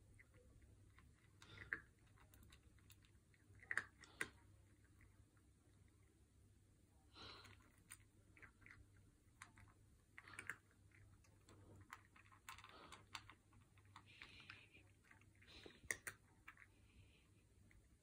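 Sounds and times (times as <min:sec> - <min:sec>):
cat crunching dry food: 0:00.2 - 0:06.1, 0:07.2 - 0:16.9.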